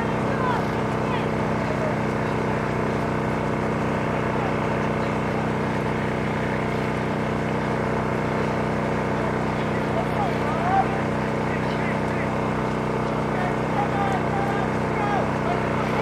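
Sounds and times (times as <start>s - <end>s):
motor droning steadily: 0.0s - 16.0s.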